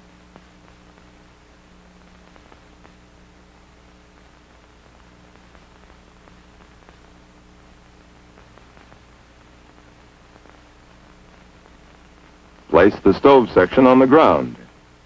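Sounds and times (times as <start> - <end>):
faint crackles: 0.0 - 15.0
steady hiss: 0.0 - 15.0.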